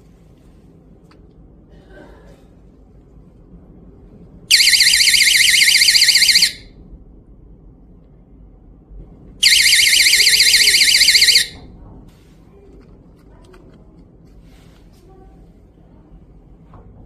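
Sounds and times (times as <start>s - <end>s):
warbling alarm siren: 4.5s - 6.7s, 9.4s - 11.6s.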